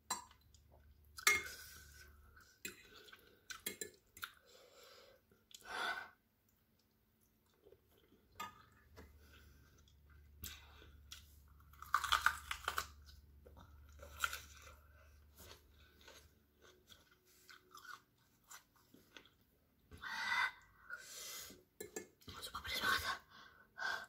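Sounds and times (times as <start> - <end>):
crunching bites and chewing: 11.5 - 14.8.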